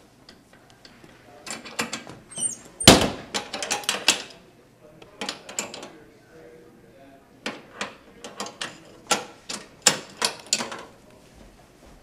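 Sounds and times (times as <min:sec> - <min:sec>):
heavy locker bang: 0:02.8 - 0:03.7.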